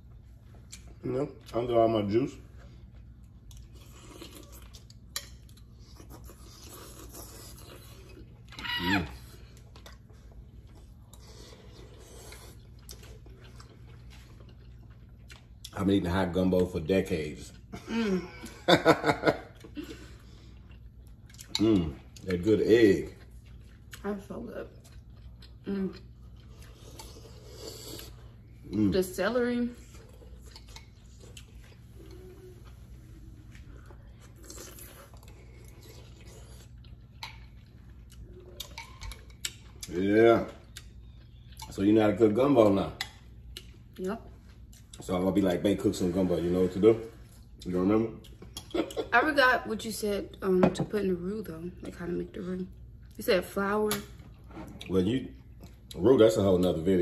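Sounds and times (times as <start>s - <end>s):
quiet chewing: 2.4s - 15.8s, 19.4s - 22.4s, 23.1s - 28.7s, 29.8s - 41.9s, 42.6s - 45.3s, 47.0s - 49.1s.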